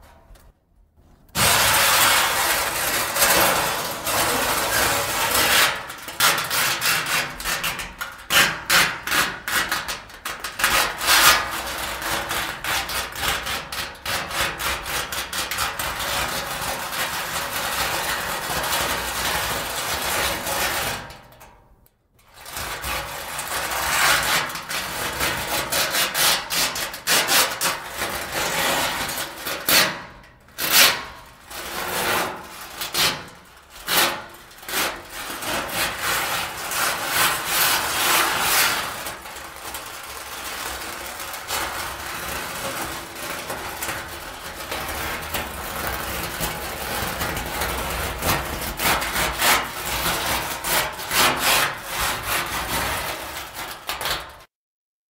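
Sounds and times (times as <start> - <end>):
steel barrels banged and scraped: 1.3 - 15.0, 27.5 - 54.4.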